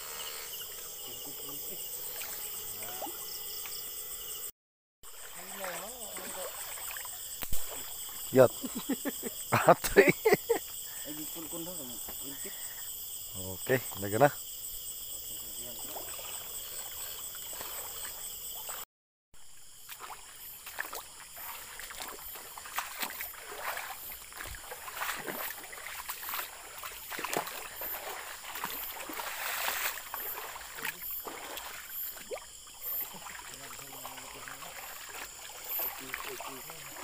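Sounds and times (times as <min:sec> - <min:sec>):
insects chorus: 0:00.0 - 0:37.0
footsteps splashing in shallow water: 0:05.0 - 0:09.0, 0:19.8 - 0:37.0.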